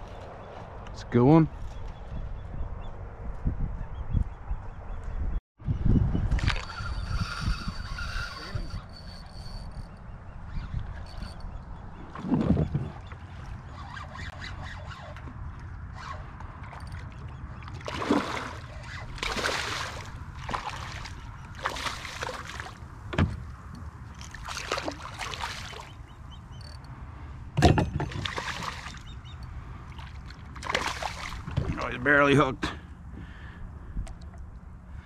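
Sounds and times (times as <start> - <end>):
water splashing and sloshing: 10.6 - 26.8, 27.5 - 32.2
knocks against boat: 23.1 - 23.4, 27.6 - 28.4.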